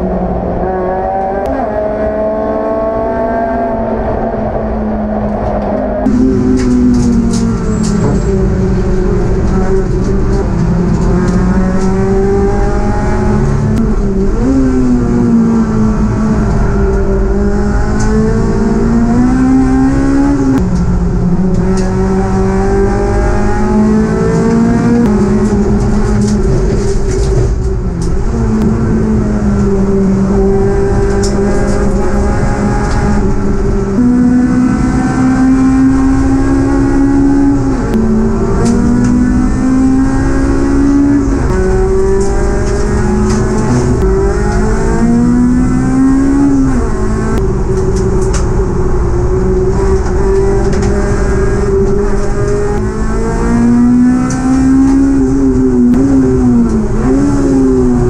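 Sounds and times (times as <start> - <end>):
race car engine revving: 0.0 - 58.0
road and wind noise: 0.0 - 58.0.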